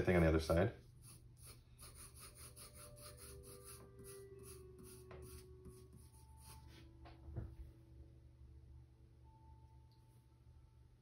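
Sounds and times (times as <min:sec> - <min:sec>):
pencil scratching on paper: 0:00.0 - 0:06.7
soft bump: 0:07.0 - 0:07.7.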